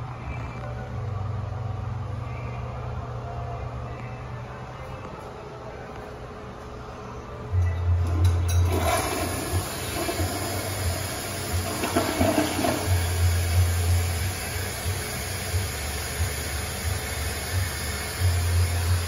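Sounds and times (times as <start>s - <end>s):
toilet flushing: 8.0s - 19.0s.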